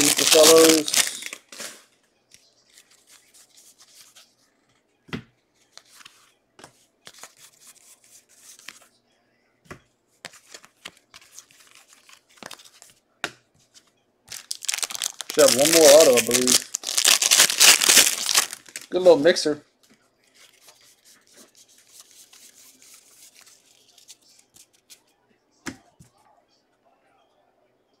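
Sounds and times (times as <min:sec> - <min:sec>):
foil wrapper rustling: 0:00.0 - 0:01.8, 0:14.3 - 0:19.0.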